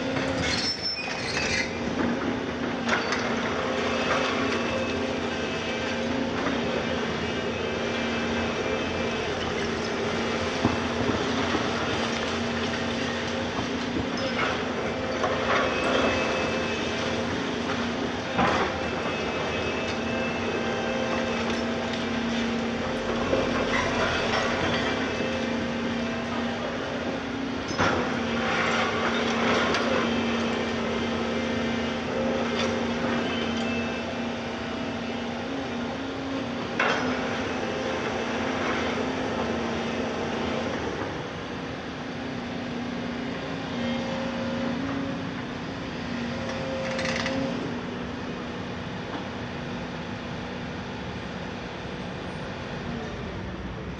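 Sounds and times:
scraping and crunching rubble: 0.0s - 27.0s
excavator diesel engine running: 0.0s - 53.9s.

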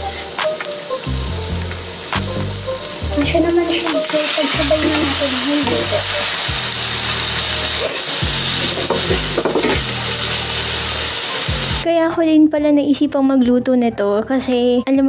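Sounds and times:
meat sizzling in a frying pan: 0.0s - 11.8s
background music with deep bass: 0.0s - 11.9s
utensils scraping a pan: 7.7s - 9.9s.

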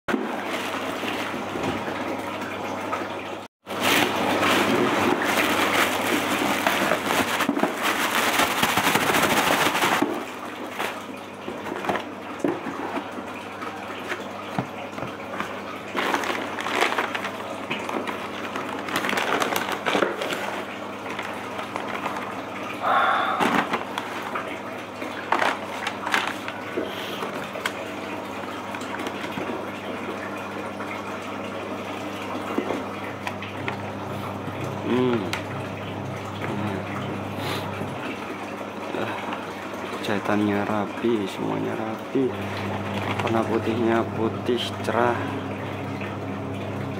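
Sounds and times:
plastic bag rustling: 3.7s - 11.2s, 15.9s - 22.2s
paper and cardboard box crinkling: 3.8s - 11.0s, 15.9s - 22.2s, 25.3s - 26.6s.

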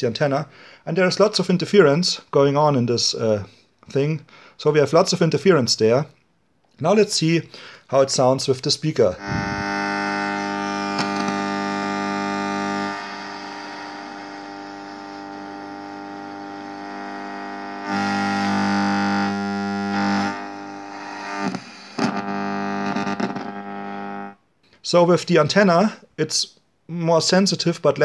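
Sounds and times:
radio hiss: 9.0s - 24.4s
radio interference buzz: 9.0s - 24.4s.

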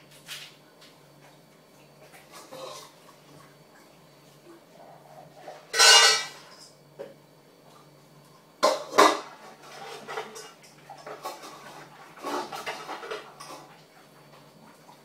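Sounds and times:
metal bowl clattering: 5.6s - 6.6s, 8.6s - 13.7s.

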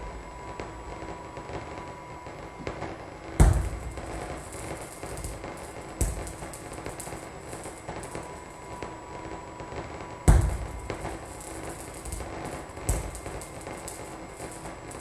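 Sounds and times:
crackling noise texture: 0.0s - 15.0s
loud deep thud: 3.4s - 3.9s, 10.3s - 10.8s.

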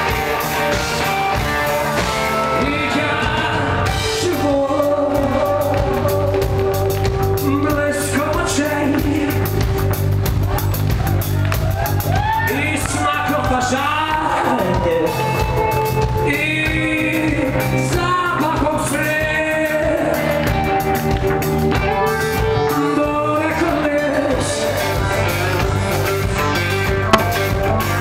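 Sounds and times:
live rock band: 0.0s - 28.0s
man singing: 2.4s - 6.7s, 7.4s - 9.6s, 16.1s - 20.5s, 22.6s - 25.1s.

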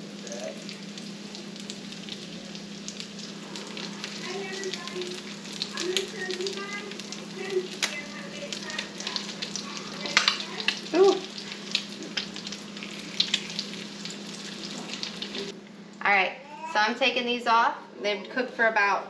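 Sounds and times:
crab cakes sizzling in oil: 0.0s - 15.5s
spatula turning food: 0.6s - 15.5s.

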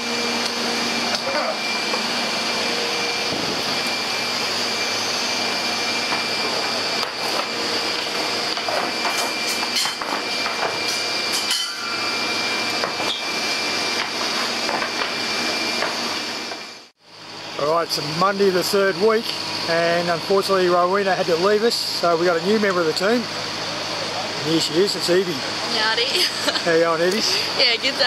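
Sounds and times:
shearing machines whining: 0.0s - 28.0s.

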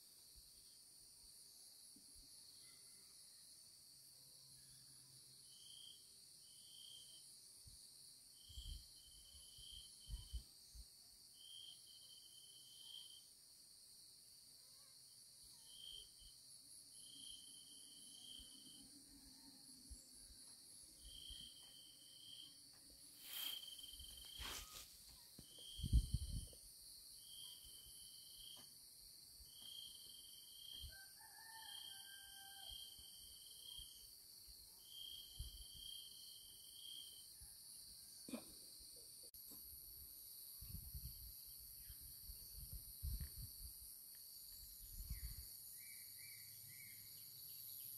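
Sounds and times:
insect chirping call: 0.0s - 47.9s
insect high-pitched trill: 14.7s - 28.7s.

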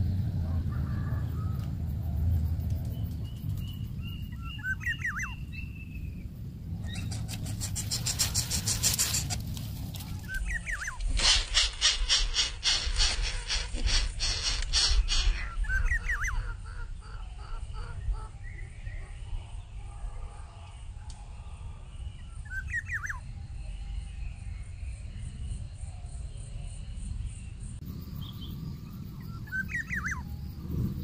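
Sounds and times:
low rumble: 0.0s - 22.5s, 26.9s - 31.0s
chicks rasping begging calls: 6.8s - 18.4s.

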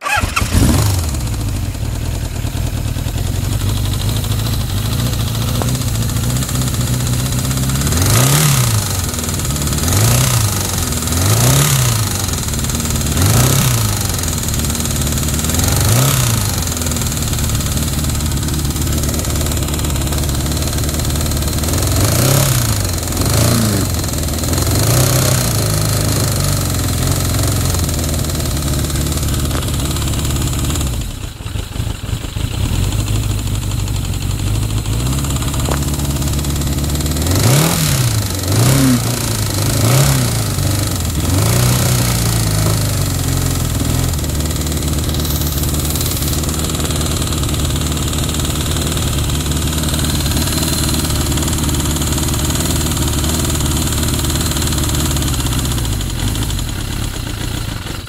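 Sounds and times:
motorcycle engine idling and revving: 0.0s - 58.0s.

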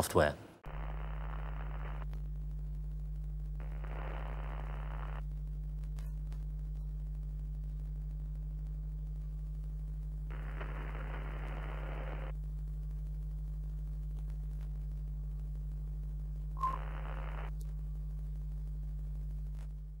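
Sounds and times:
low electrical hum: 0.2s - 20.0s
static hiss: 0.6s - 20.0s
brief beep: 16.6s - 16.8s.

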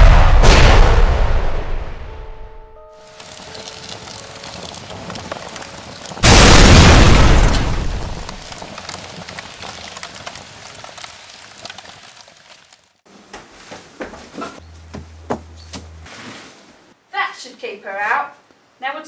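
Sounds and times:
loud explosion: 0.0s - 2.5s, 6.2s - 8.6s
fire crackling with small pops: 3.2s - 13.0s.

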